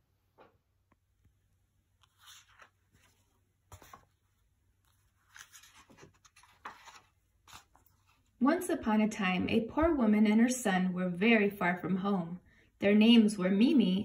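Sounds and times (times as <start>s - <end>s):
book pages turning: 1.9s - 8.4s.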